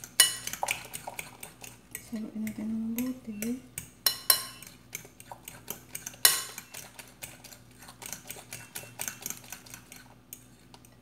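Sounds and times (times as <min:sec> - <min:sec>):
spoon clinking in glass bowl: 0:00.2 - 0:00.8, 0:03.0 - 0:04.7, 0:06.2 - 0:06.9.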